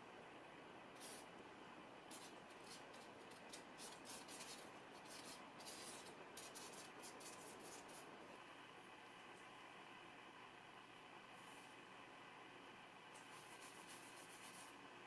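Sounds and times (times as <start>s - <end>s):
brush scrubbing paint on paper: 1.0s - 1.3s, 2.1s - 8.1s, 13.2s - 14.8s.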